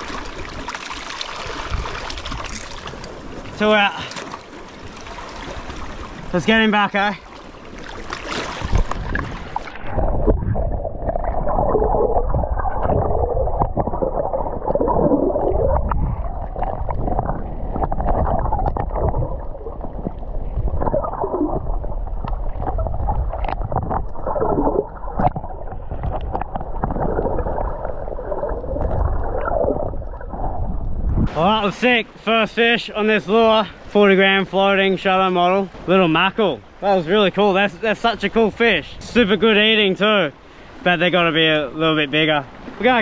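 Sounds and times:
muffled underwater wash: 0.0 - 43.0
bubbling: 7.5 - 31.4.

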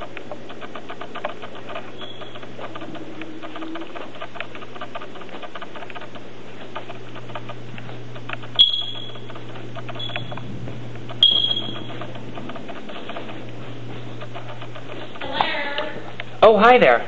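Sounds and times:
steady low hum: 0.0 - 17.0
high-pitched electronic chirps: 8.6 - 9.2, 11.2 - 11.9.

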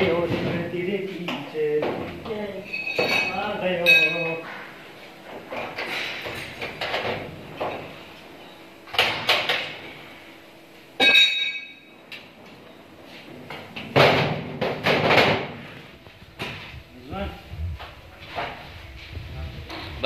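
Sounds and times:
ringing metal clang: 2.6 - 4.4, 11.0 - 11.9.

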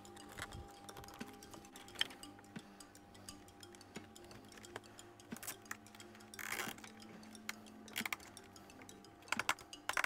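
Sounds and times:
plastic parts clicking: 7.9 - 8.4, 9.3 - 10.0.

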